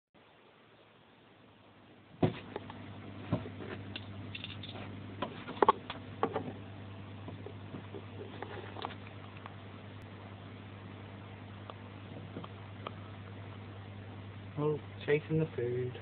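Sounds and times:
aquarium filter hum: 0.2 - 16.0.

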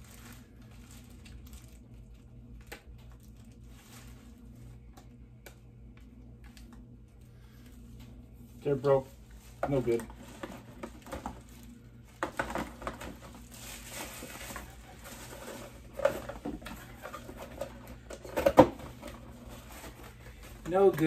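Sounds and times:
packaging rustling: 0.0 - 4.8, 9.1 - 21.0.

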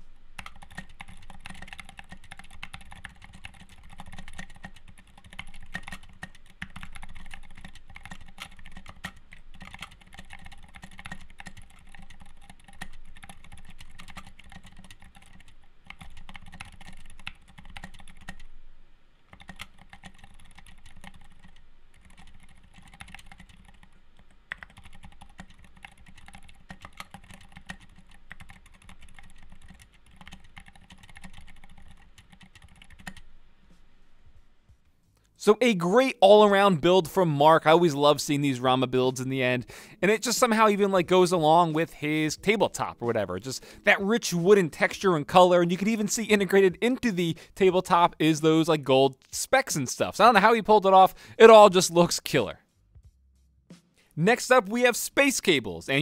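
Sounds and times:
typing on a mechanical keyboard: 0.4 - 18.5, 19.3 - 33.3.

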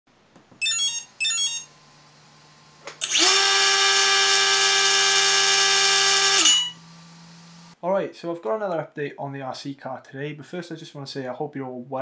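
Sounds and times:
electric motor high whine: 0.7 - 7.8.

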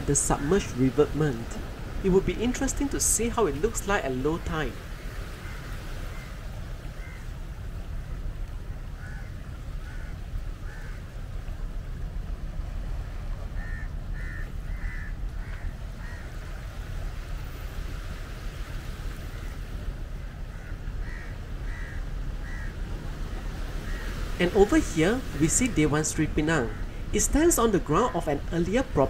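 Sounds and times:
crows cawing: 7.0 - 7.3, 9.0 - 11.0, 13.6 - 16.4, 20.3 - 24.3
steady low rumble: 19.7 - 29.0.

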